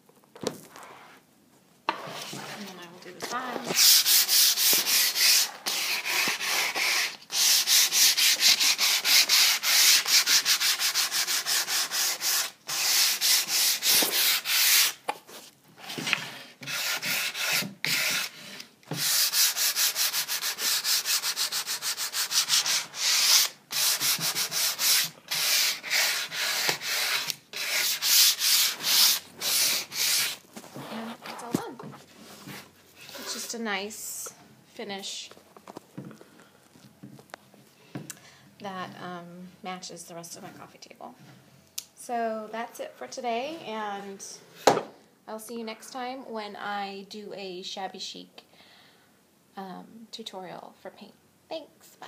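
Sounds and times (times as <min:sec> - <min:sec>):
sandpaper scratching on wood: 0:03.7 - 0:15.0, 0:16.6 - 0:30.4.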